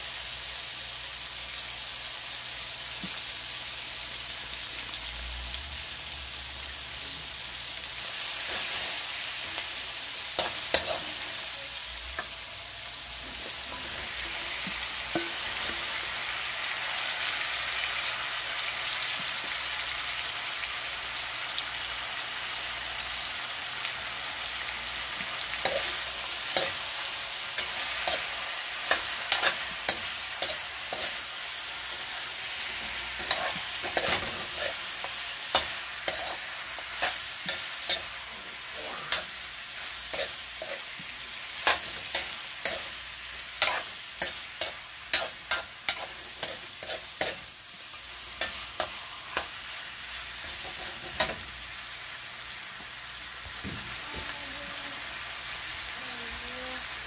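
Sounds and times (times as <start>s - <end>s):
food sizzling in a wok: 0.0s - 57.0s
metal spoon scraping a pan: 10.3s - 11.5s, 13.2s - 16.0s, 25.5s - 51.5s.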